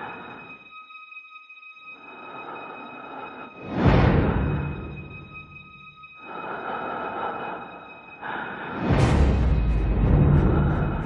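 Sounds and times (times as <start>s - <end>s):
low rumble: 2.4s - 11.0s.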